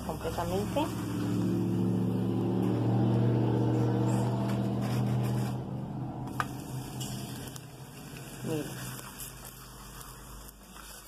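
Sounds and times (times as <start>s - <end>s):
low engine-like hum: 0.0s - 8.9s.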